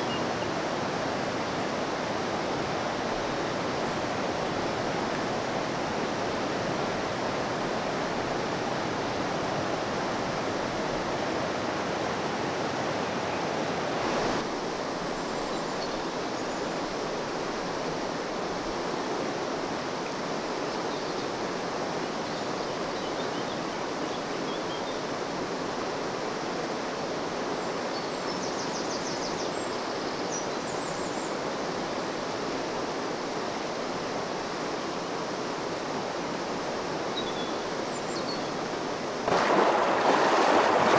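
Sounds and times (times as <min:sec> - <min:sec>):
river rushing over stones: 0:00.0 - 0:22.2, 0:31.3 - 0:40.9.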